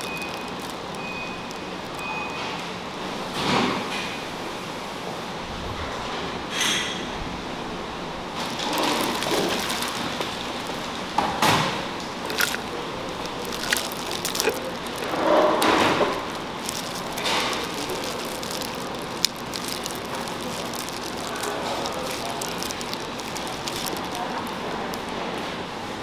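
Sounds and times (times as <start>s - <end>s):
shrimp shells cracking: 0.0s - 2.3s, 8.4s - 25.3s
plastic gloves crinkling: 0.0s - 2.6s, 8.3s - 25.8s
steady background noise: 0.0s - 26.0s.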